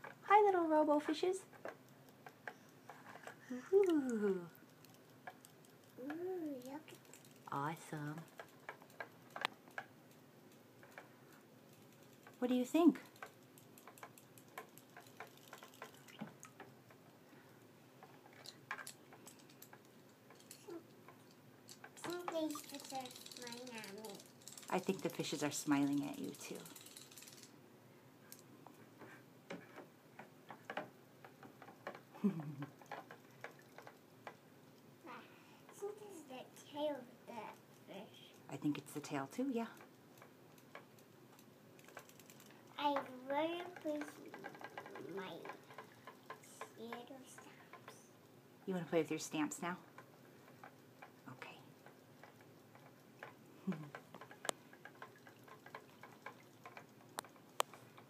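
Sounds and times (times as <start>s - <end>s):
child vocal sound: 3.4s - 4.1s
plastic toy pieces clicking: 13.1s - 16.2s, 18.4s - 25.2s, 25.9s - 27.5s
toy motor clicking: 21.7s - 27.5s, 39.5s - 48.1s.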